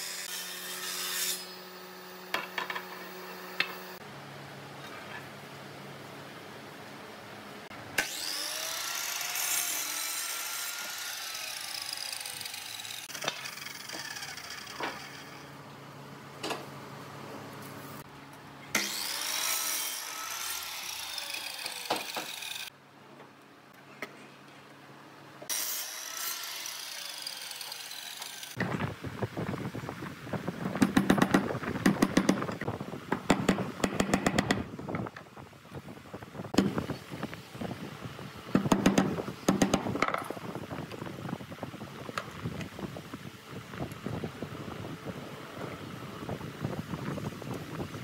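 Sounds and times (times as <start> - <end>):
miter saw cutting wood: 8.0 - 15.5, 18.7 - 22.7, 25.5 - 28.6.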